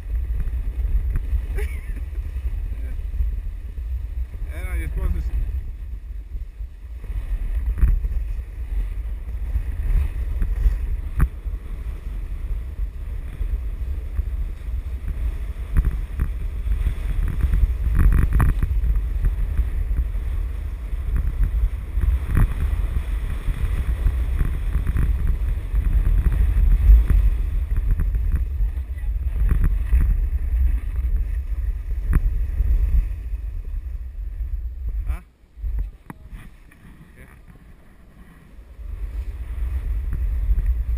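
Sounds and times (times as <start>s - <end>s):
wind buffeting microphone: 0.0s - 40.9s
skis sliding on snow: 6.9s - 34.0s, 36.2s - 40.9s.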